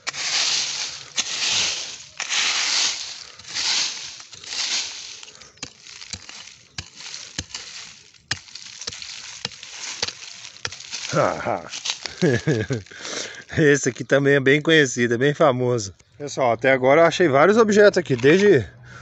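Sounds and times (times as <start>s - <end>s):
digging tool chopping soil: 0.0s - 13.0s.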